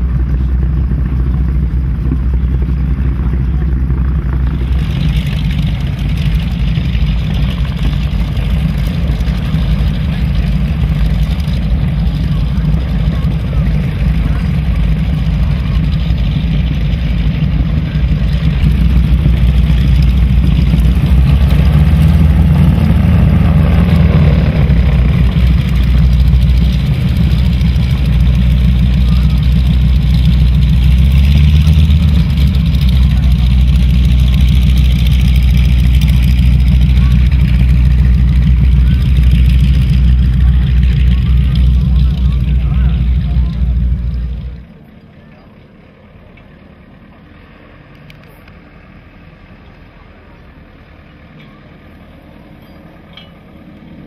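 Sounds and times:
radial aircraft engine running: 0:00.0 - 0:54.0.

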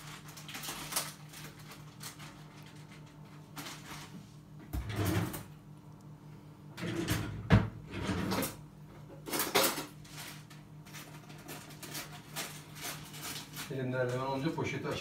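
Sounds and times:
plastic bag crinkling: 0:00.0 - 0:04.2, 0:09.8 - 0:15.0.

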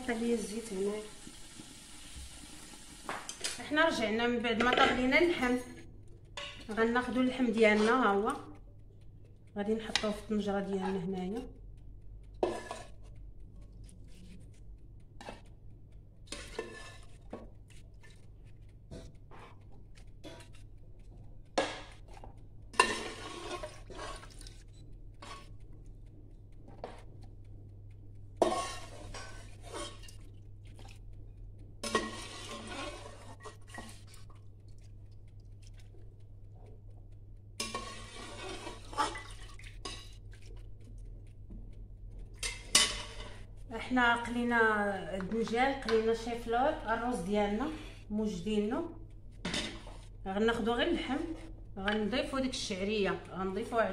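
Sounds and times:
metal spoon clinking on pot: 0:42.4 - 0:43.3.

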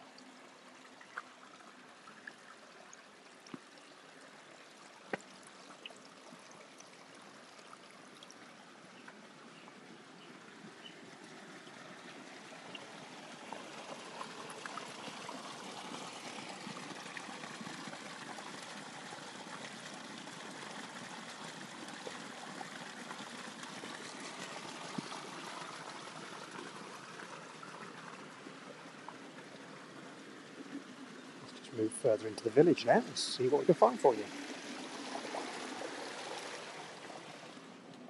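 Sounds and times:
water gushing and splashing on rocks: 0:10.4 - 0:37.8.

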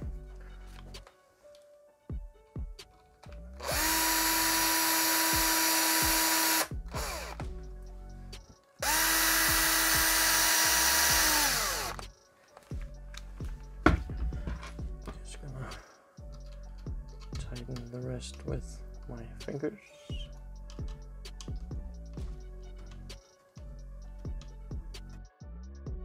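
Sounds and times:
power drill driving a bolt: 0:03.6 - 0:07.4, 0:08.8 - 0:12.0.

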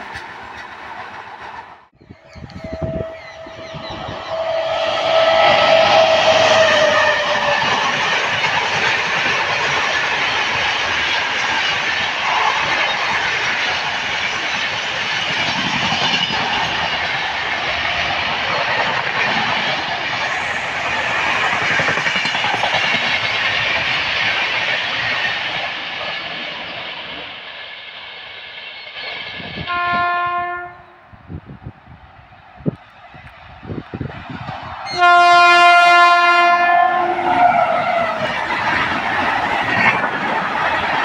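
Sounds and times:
train wheels rushing over rails: 0:00.0 - 0:30.4, 0:31.4 - 0:41.0
train horn blast: 0:02.4 - 0:07.9, 0:29.6 - 0:31.0, 0:34.9 - 0:38.1.

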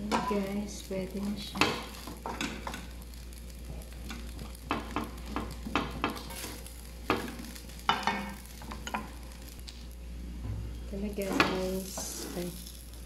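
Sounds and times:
rice sizzling: 0:00.0 - 0:13.0
spatula scraping a wok: 0:01.5 - 0:09.6, 0:11.1 - 0:13.0.

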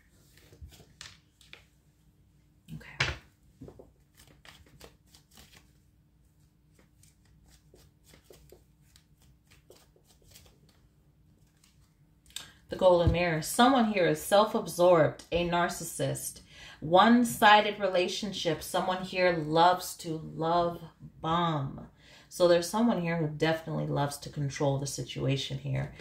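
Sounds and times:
cards shuffling: 0:00.2 - 0:01.8, 0:03.6 - 0:12.6.

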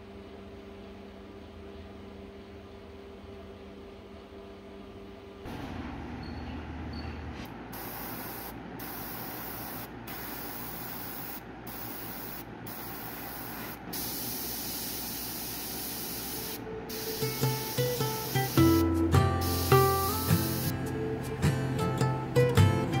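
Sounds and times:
airbrush spraying hiss: 0:07.8 - 0:20.7.

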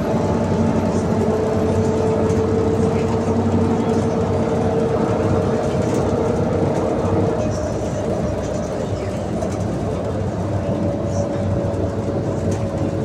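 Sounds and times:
road and body running noise: 0:00.0 - 0:13.0.

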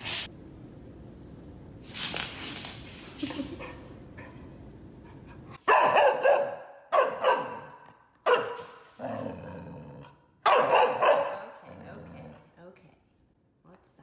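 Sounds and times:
puppy barking: 0:05.6 - 0:08.8, 0:10.4 - 0:11.6.

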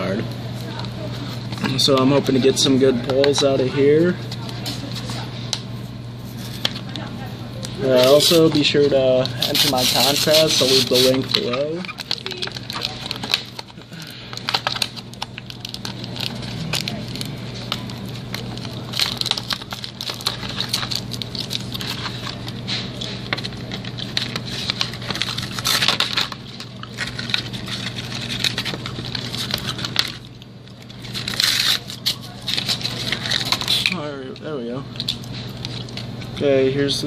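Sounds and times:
steady low hum: 0:00.0 - 0:37.0
plastic blister pack crinkling: 0:07.8 - 0:37.0.

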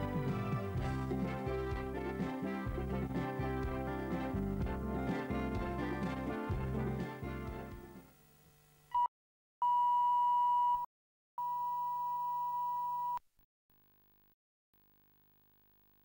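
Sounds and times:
closing music: 0:00.0 - 0:08.1.

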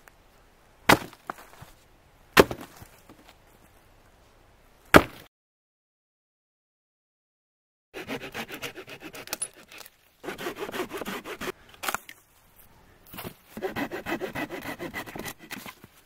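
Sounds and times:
hand saw cutting firewood: 0:08.0 - 0:11.6, 0:13.6 - 0:15.9.

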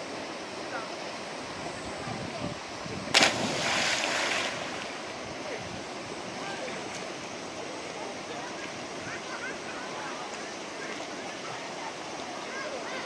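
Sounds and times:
flowing river water: 0:00.0 - 0:13.0
loud splash into water: 0:03.1 - 0:05.0.

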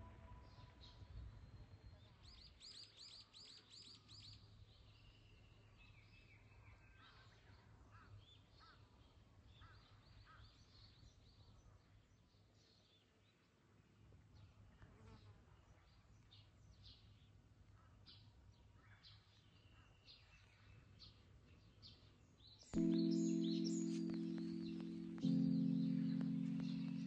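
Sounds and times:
birds chirping: 0:22.8 - 0:27.0.

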